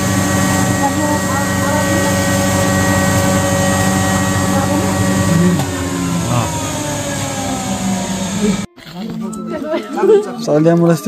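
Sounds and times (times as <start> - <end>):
electric motor humming: 0.0 - 8.7.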